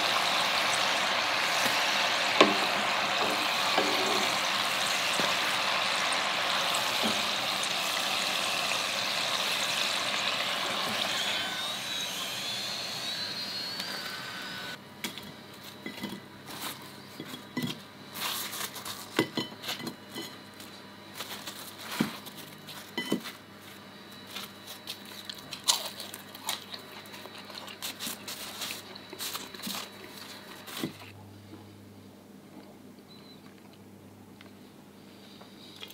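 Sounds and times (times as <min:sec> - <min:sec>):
food deep-frying in oil: 0:00.0 - 0:14.8.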